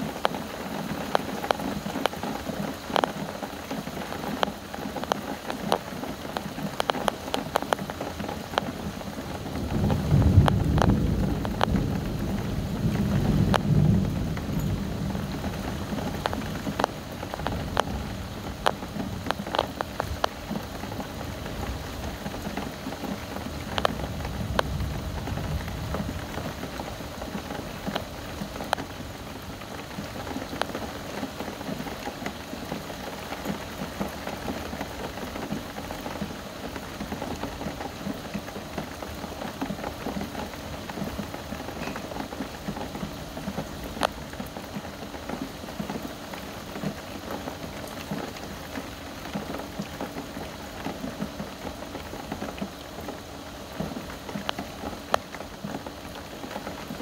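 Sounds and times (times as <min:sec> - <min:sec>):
raindrops tapping nearby: 0:00.0 - 0:57.0
steady rain: 0:00.0 - 0:57.0
low thunder rumble: 0:09.4 - 0:19.4, 0:23.4 - 0:29.1.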